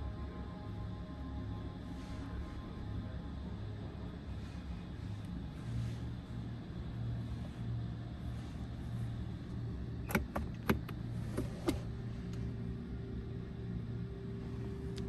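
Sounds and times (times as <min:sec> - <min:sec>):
sharp clicks of controls: 0:10.0 - 0:11.9.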